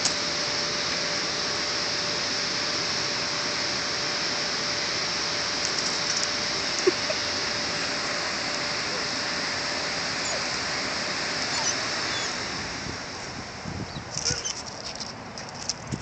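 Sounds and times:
rushing hiss: 0.0 - 15.3
faint short squeak: 14.2 - 14.6.

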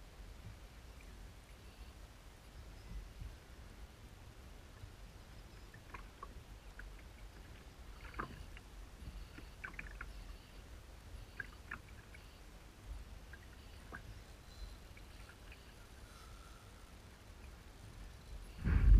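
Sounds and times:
small splashes and ticks: 4.7 - 10.6, 11.2 - 16.0
waves lapping against kayak hull: 5.4 - 16.6
low rumble: 18.4 - 18.9.

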